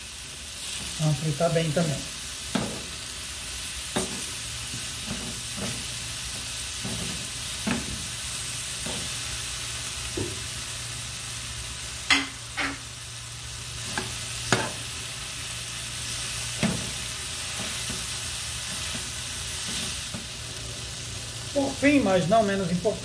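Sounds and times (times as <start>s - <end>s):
vegetables sizzling in oil: 0.0s - 23.0s
metal spoon knocking on pan: 12.1s - 12.8s.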